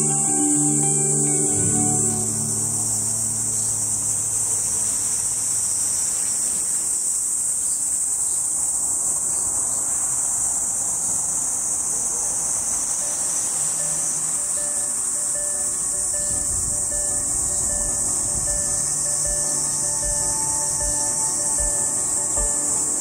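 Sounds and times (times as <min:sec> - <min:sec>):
background music: 0:00.0 - 0:05.2, 0:13.8 - 0:23.0.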